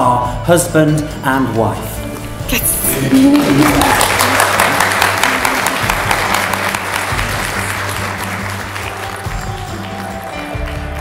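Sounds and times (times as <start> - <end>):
soft background music: 0.0 - 11.0
congregation applauding: 2.6 - 11.0.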